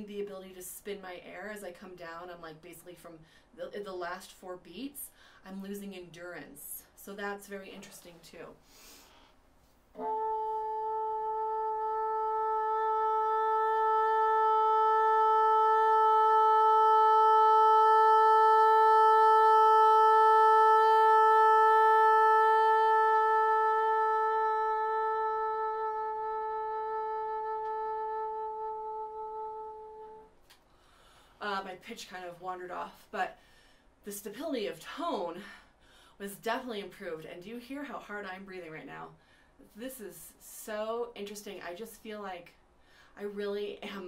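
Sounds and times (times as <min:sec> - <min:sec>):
bassoon long held tone: 0:10.0 - 0:30.4.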